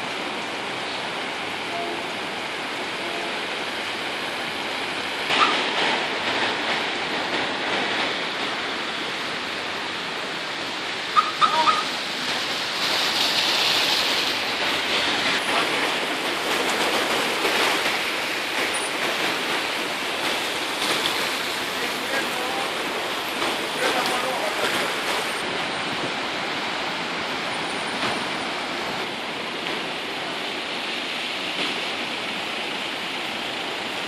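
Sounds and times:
floodwater rushing: 0.0 - 34.0
short sharp calls: 11.2 - 12.0.

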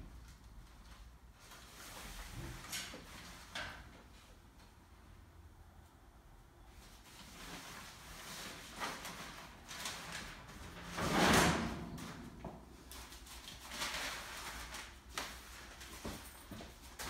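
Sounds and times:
metal grate scraping slide: 10.8 - 12.3.

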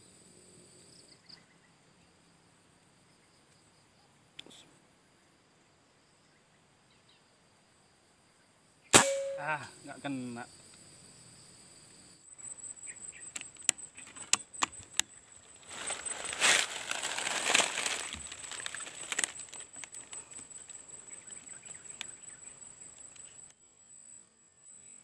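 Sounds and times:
sharp clicks: 13.3 - 15.1
rustling: 14.0 - 20.9.

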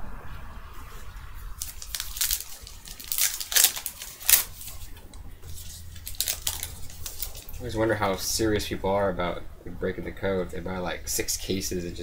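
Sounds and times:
trading cards rustling and snapping: 1.6 - 7.7.

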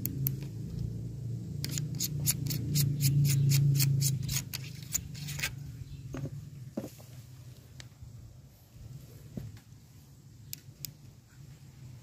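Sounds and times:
scope turret clicks: 1.6 - 5.5.

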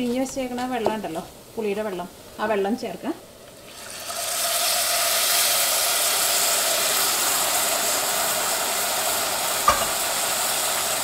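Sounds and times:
liquid sizzling in hot oil: 3.5 - 11.0
sharp knock: 9.7 - 10.1.

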